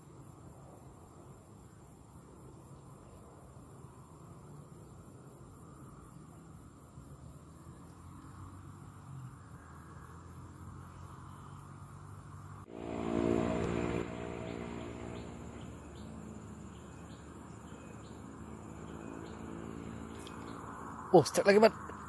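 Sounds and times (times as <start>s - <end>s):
crickets chirring: 0.0s - 22.0s
steady multi-pitched hum: 12.6s - 18.6s.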